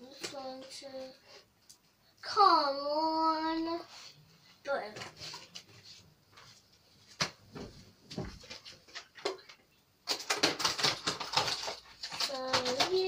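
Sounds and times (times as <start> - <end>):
packaging crackling rustles: 8.4 - 13.0.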